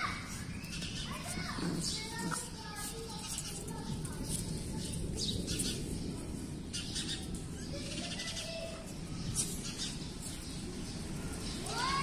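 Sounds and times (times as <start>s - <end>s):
puppies scuffling clicks: 0.6s - 5.0s.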